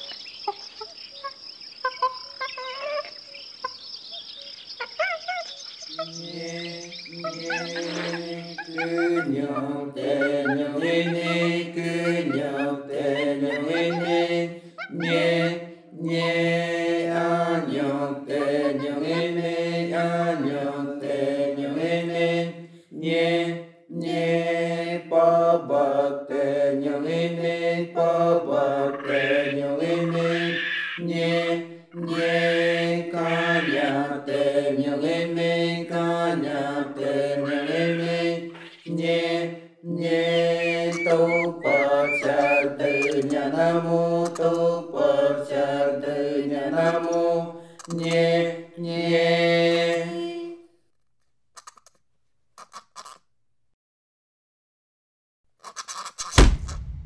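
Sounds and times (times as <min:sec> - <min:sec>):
voices chanting a melody: 0:04.2 - 0:22.4, 0:23.1 - 0:50.1.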